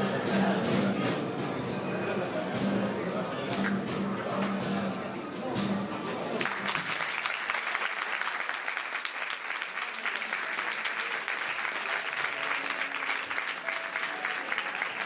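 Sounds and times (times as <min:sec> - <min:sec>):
faint instrumental music: 0:00.0 - 0:06.7
audience applauding: 0:06.4 - 0:15.0.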